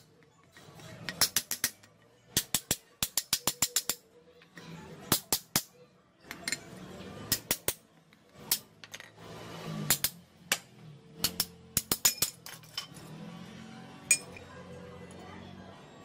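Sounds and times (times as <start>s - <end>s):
hammer tapping metal: 1.1s - 4.0s, 11.2s - 12.6s.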